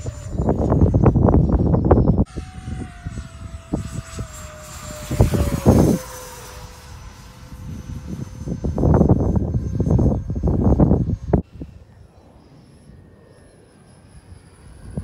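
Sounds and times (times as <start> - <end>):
model jet ducted fan whining: 0.0 - 15.0
wind gusts on microphone: 0.0 - 15.0.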